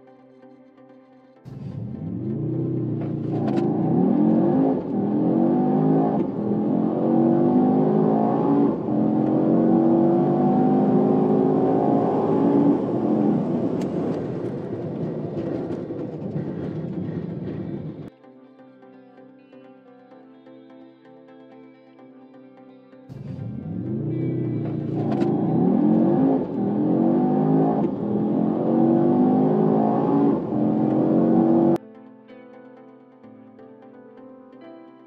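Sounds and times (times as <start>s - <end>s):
car engine accelerating hard: 1.5s - 18.1s, 23.1s - 31.8s.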